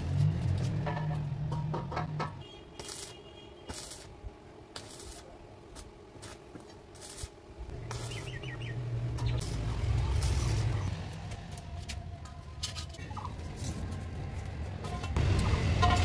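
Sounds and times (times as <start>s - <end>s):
arc welding bursts: 2.6s - 5.3s, 6.2s - 11.0s
bird chirping: 7.7s - 11.0s.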